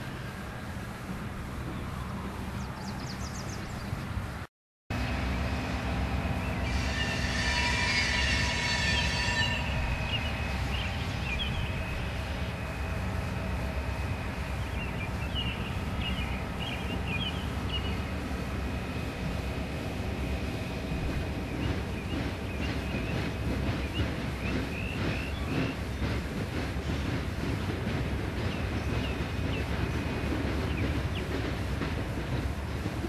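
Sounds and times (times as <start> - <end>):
diesel locomotives rumbling: 0.0 - 33.0
high squeal: 6.5 - 12.2.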